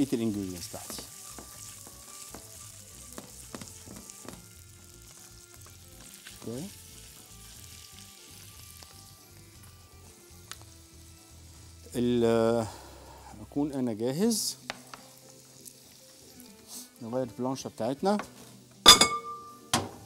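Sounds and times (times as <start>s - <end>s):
sausage sizzling in a frying pan: 0.0s - 19.2s.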